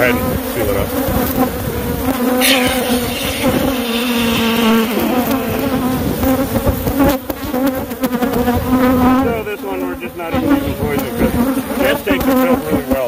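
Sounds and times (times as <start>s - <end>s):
swarm of bees buzzing: 0.0s - 13.0s
spray foam can hissing: 2.4s - 6.2s.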